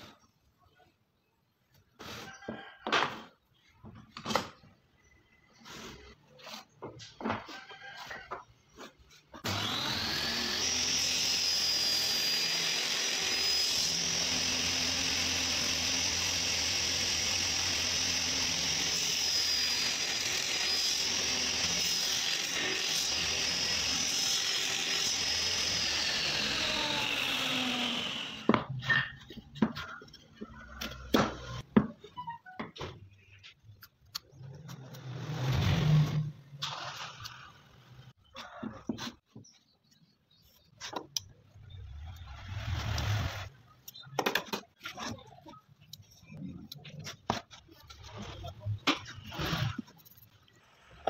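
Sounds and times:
saw cutting wood: 8.8s - 31.7s, 34.4s - 39.2s, 42.0s - 45.3s, 46.3s - 51.0s
table saw whining: 9.3s - 32.6s.

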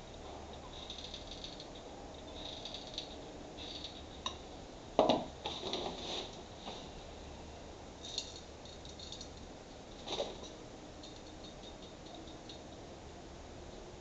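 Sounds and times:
small clicks and scrapes: 0.1s - 4.4s.

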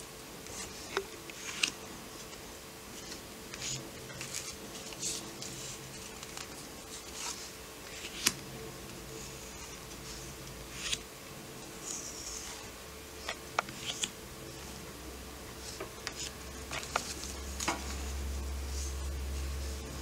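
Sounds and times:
faint hum: 0.0s - 20.0s
postcards swishing: 9.1s - 11.0s.

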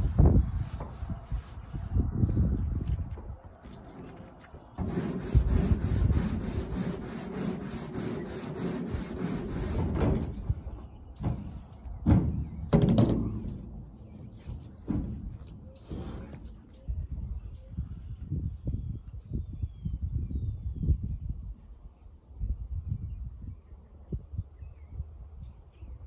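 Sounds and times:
knocks and thumps: 9.1s - 16.7s.

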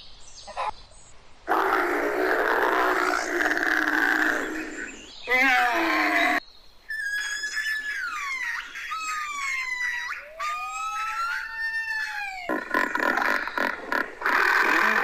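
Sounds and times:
lower monkey call: 1.5s - 15.0s
monkeys giving high whining calls: 1.5s - 15.0s.

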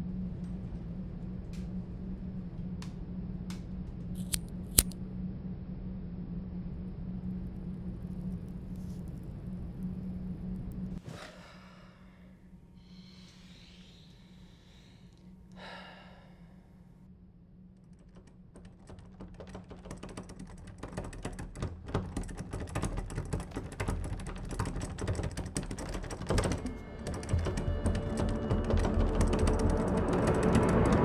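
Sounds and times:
low steady hum: 0.0s - 18.8s
soft breath: 11.0s - 17.1s
keyboard typing: 17.8s - 31.0s.

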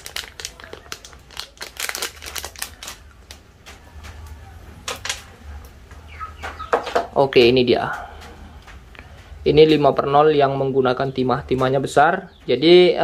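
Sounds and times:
plastic packet crinkling: 0.0s - 3.7s.

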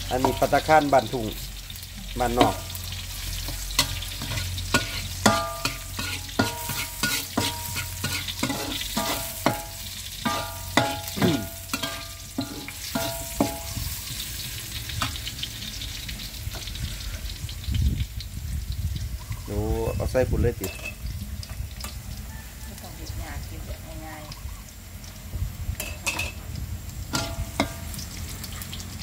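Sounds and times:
garlic sizzling in hot oil: 0.0s - 29.0s
metal spatula striking a wok: 0.1s - 0.7s, 2.0s - 14.4s, 20.6s - 21.0s, 25.8s - 26.4s, 27.1s - 28.1s.

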